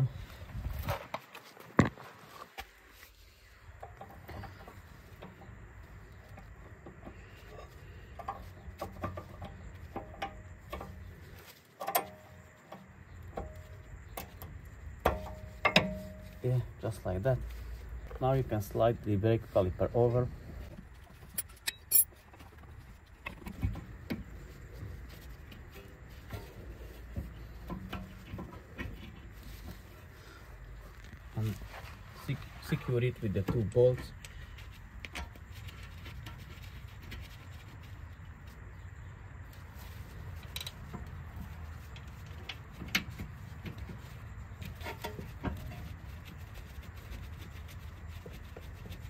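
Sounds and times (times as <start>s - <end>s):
light metal clicks and knocks: 6.3s - 11.1s, 11.7s - 16.4s, 25.1s - 29.8s
metallic clicks and knocks: 11.8s - 16.3s, 21.2s - 22.6s.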